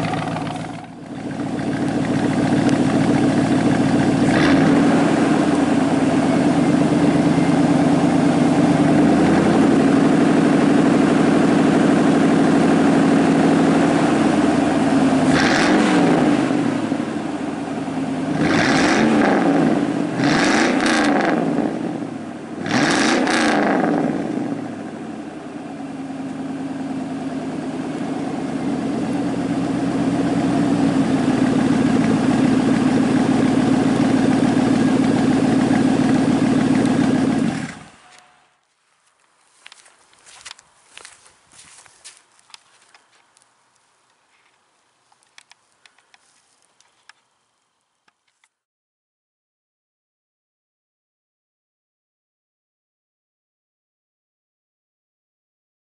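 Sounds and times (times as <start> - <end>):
truck engine idling and revving: 0.0 - 38.3.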